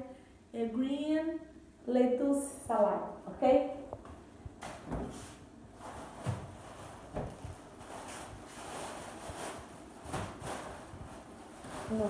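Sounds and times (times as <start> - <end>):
plastic bag rustling: 5.0 - 12.0.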